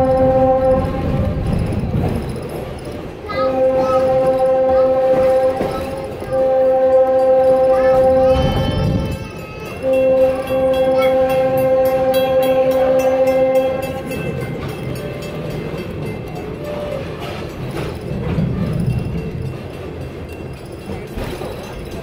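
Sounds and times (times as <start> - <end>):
train horn blasts: 0.0 - 1.5, 3.4 - 9.2, 9.8 - 14.3
train rolling rumble: 0.0 - 22.0.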